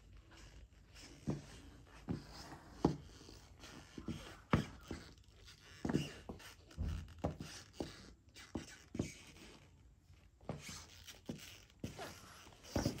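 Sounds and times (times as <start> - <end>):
footsteps on tiled floor: 0.0 - 9.8, 10.4 - 13.0
faint shoe scuffing: 0.3 - 13.0.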